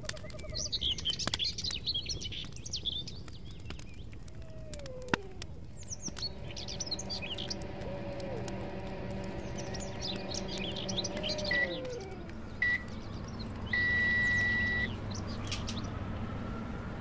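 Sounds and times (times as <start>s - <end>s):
birds chirping: 0.1s - 17.0s
electronic beeps: 9.8s - 12.9s, 13.7s - 14.9s.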